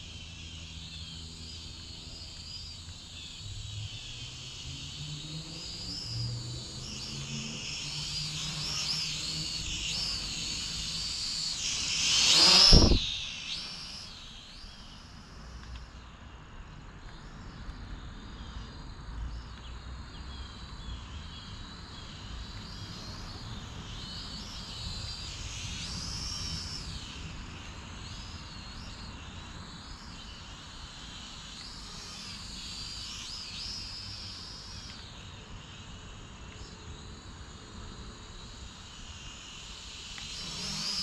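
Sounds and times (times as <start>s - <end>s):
drone propellers whining: 0.4s - 14.8s, 40.2s - 41.0s.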